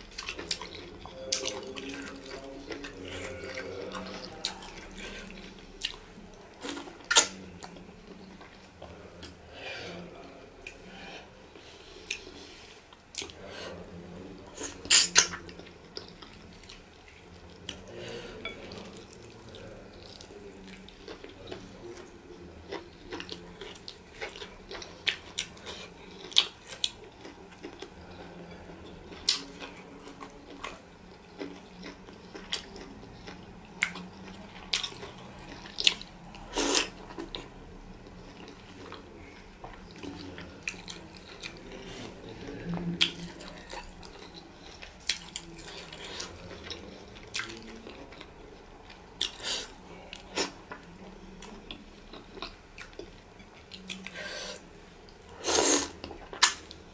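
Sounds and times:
chewing: 0:00.0 - 0:56.9.

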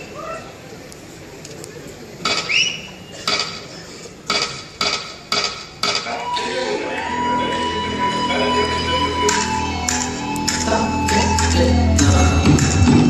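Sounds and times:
dance music over speakers: 0:06.8 - 0:13.0.

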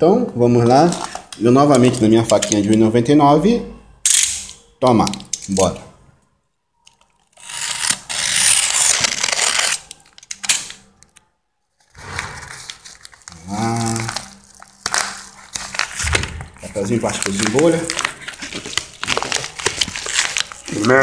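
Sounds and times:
paper tearing and crinkling: 0:07.5 - 0:10.7, 0:11.8 - 0:21.0.

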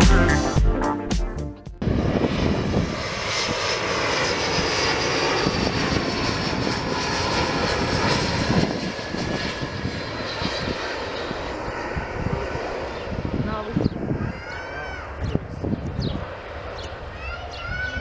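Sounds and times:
jet engine roar with high whine: 0:01.8 - 0:18.0.

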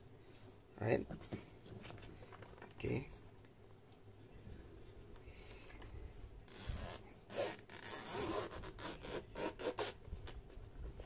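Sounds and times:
zipper pulled open: 0:06.5 - 0:10.4.

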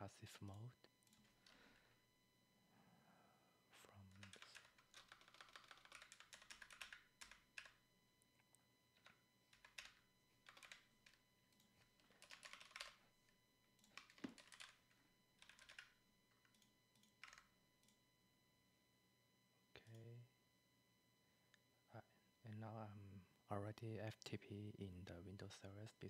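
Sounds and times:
keyboard typing: 0:04.1 - 0:07.8, 0:09.0 - 0:13.0, 0:13.8 - 0:18.0.

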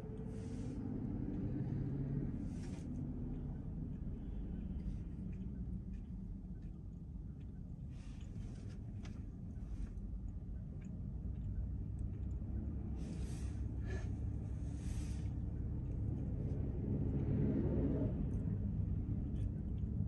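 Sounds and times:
car engine and road rumble: 0:00.0 - 0:20.0.

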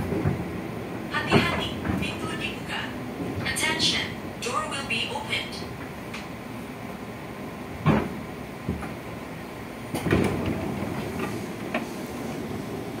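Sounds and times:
train car rumble: 0:00.0 - 0:13.0
knocks and rattles: 0:09.9 - 0:11.8.

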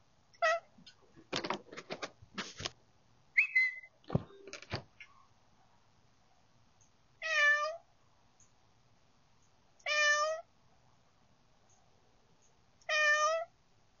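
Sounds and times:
cat meowing: 0:00.4 - 0:00.7, 0:07.2 - 0:07.8, 0:09.8 - 0:10.5, 0:12.8 - 0:13.5.

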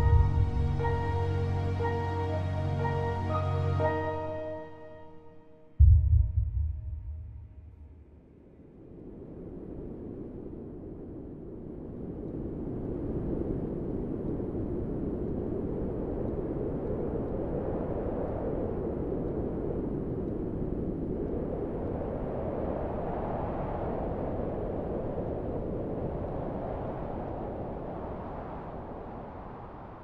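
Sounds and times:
low rumbling noise: 0:00.0 - 0:04.5, 0:05.8 - 0:08.2.

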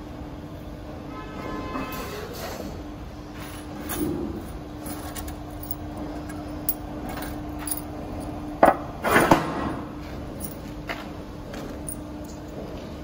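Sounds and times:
metal on metal rattle: 0:03.5 - 0:07.9.

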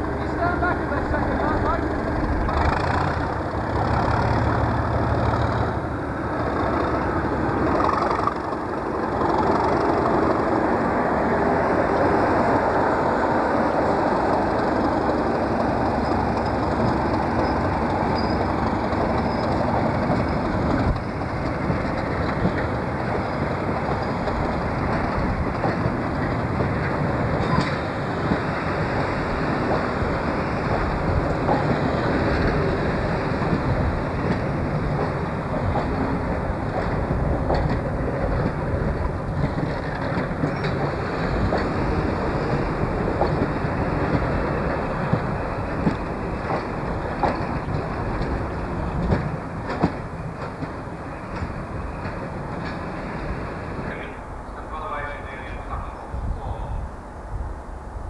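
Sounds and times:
diesel locomotive engine working: 0:00.0 - 0:58.0
train coaches rolling on rails: 0:00.0 - 0:58.0.

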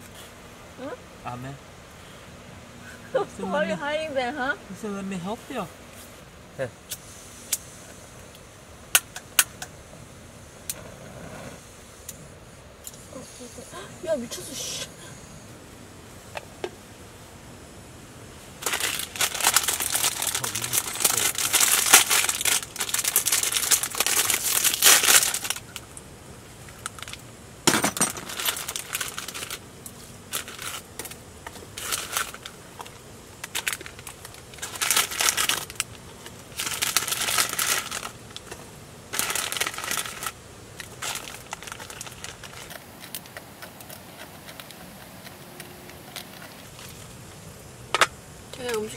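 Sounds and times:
plastic packets crinkling: 0:18.6 - 0:26.0, 0:26.7 - 0:29.6, 0:30.3 - 0:47.1.

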